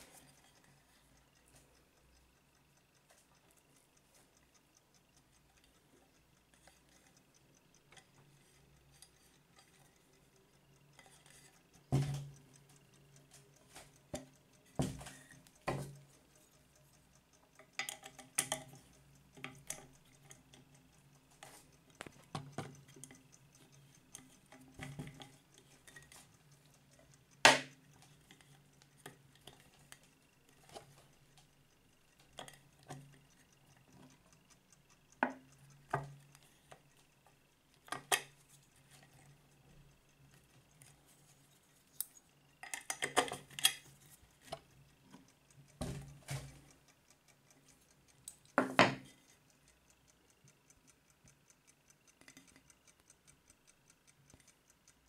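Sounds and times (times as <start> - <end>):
metal clicks and clinks: 42.0 - 44.1.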